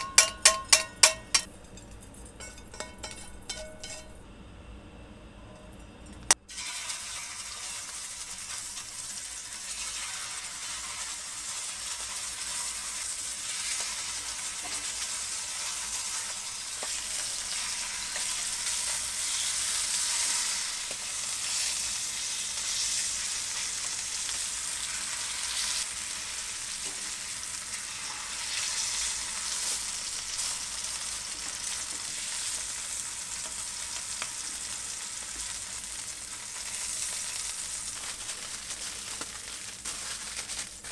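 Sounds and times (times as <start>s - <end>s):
tongs tapping: 0.0s - 4.2s
meat sizzling in frying pan: 6.5s - 40.9s.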